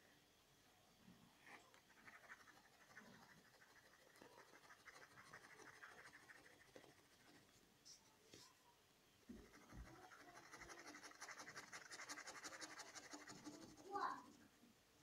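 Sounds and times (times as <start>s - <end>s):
pen scratching on paper: 1.8s - 7.6s, 9.4s - 14.0s.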